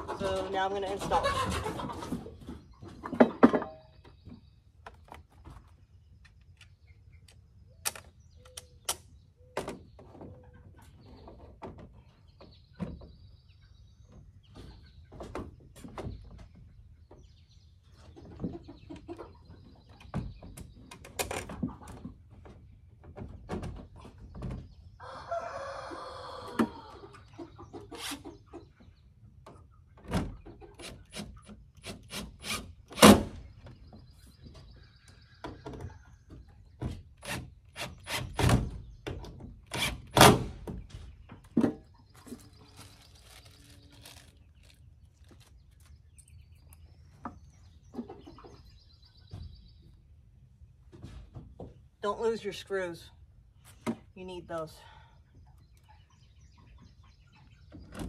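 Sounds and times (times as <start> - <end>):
rooster crowing: 25.0 - 26.9.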